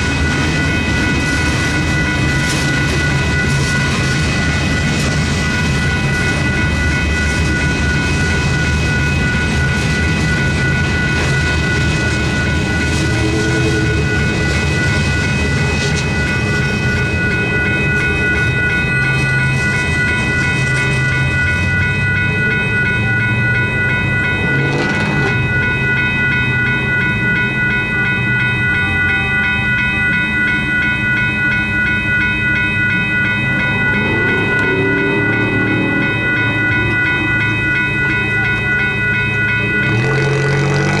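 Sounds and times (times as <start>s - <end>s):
crossing signal bell ringing: 0.0s - 41.0s
freight train rumbling: 0.0s - 41.0s.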